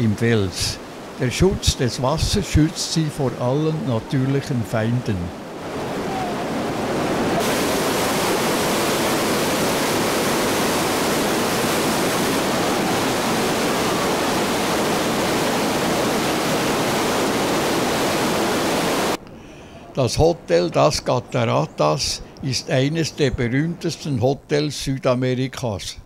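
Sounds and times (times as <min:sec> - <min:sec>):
waterfall rushing and crashing: 0:00.0 - 0:19.2.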